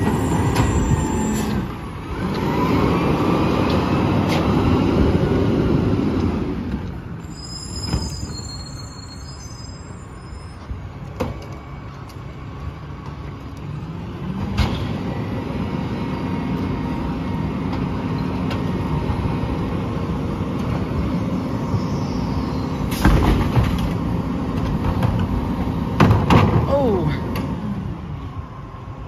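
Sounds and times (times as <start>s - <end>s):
trash knocking into hopper: 26.0s - 26.7s.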